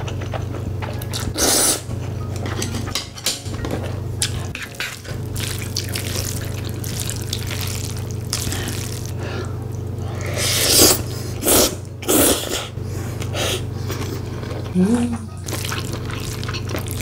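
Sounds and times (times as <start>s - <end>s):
slurping noodles: 10.0s - 14.4s.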